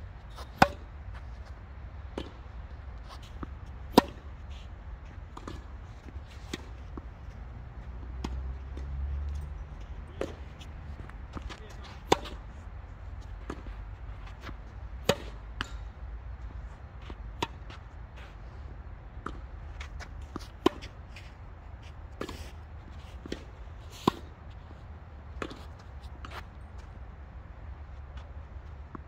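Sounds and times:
tennis balls struck and bouncing: 0:00.3 - 0:04.4, 0:05.2 - 0:16.2, 0:16.9 - 0:17.8, 0:19.2 - 0:21.2, 0:25.3 - 0:26.9.

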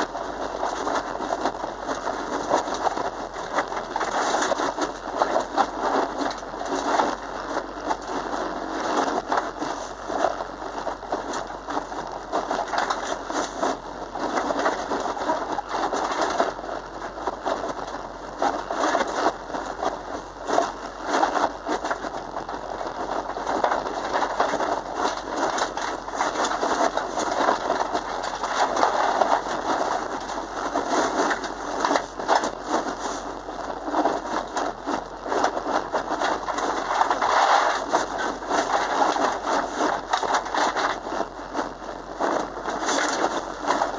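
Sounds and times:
car engine under load: 0:00.0 - 0:43.9
gravel striking car underside: 0:17.2 - 0:43.9.

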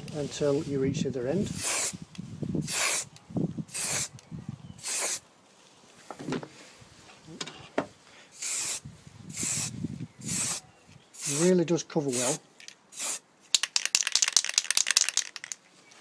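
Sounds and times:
spray paint can hissing: 0:01.5 - 0:02.0, 0:02.6 - 0:03.1, 0:03.7 - 0:04.2, 0:04.8 - 0:05.2, 0:08.4 - 0:10.6, 0:11.2 - 0:11.5, 0:12.1 - 0:15.6.

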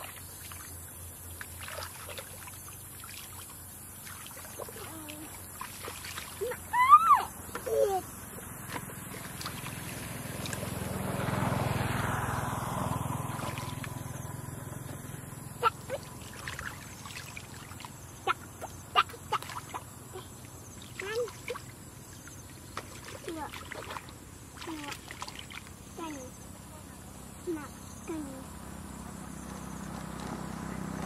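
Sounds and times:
hands sloshing in muddy water: 0:00.0 - 0:06.9, 0:08.4 - 0:10.8, 0:13.2 - 0:14.1, 0:15.7 - 0:25.9
sharp water splashes and slaps: 0:00.0 - 0:26.3.

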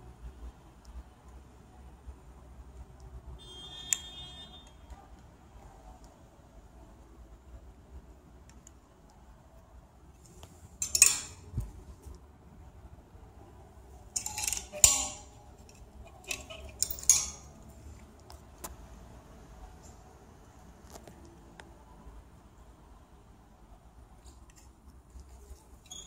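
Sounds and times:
metal hangers clinking on a rail: 0:10.8 - 0:11.6, 0:14.0 - 0:17.7.

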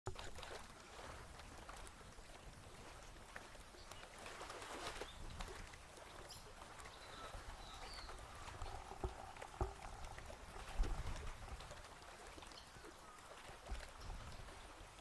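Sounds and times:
small waves lapping: 0:00.1 - 0:15.0
soft water slaps: 0:00.1 - 0:15.0
low wind rumble: 0:05.1 - 0:13.2
faint bird calls: 0:06.1 - 0:10.8, 0:12.2 - 0:14.2.

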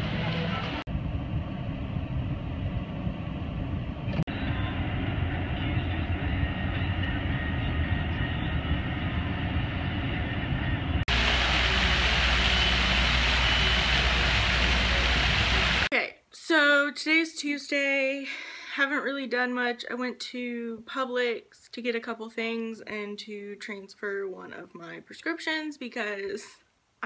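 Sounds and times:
fountain water jets splashing: 0:11.1 - 0:15.9.

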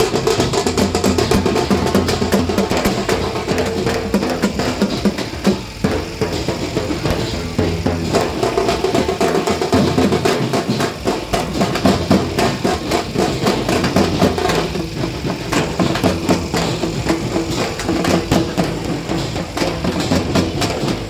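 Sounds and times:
fast drum-heavy music: 0:00.0 - 0:21.0.

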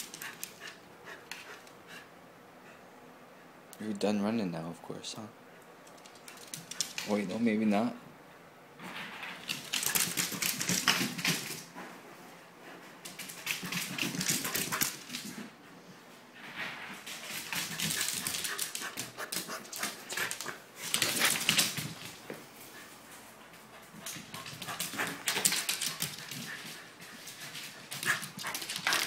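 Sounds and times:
dog claws clicking on wooden floor: 0:09.4 - 0:11.6, 0:24.0 - 0:26.6, 0:27.9 - 0:29.0.

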